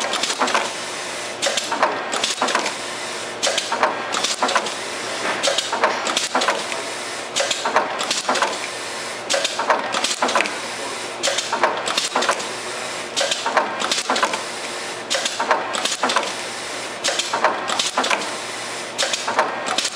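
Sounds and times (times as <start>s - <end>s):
machine clicking and clattering: 0.0s - 0.8s, 1.4s - 2.8s, 3.4s - 6.8s, 7.4s - 8.7s, 9.3s - 10.6s, 11.2s - 12.5s, 13.2s - 14.5s, 15.1s - 16.4s, 17.0s - 18.4s, 19.0s - 19.9s.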